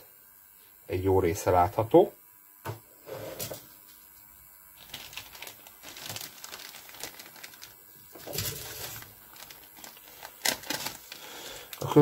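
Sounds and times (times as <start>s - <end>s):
plastic bag crinkling: 4.8s - 12.0s.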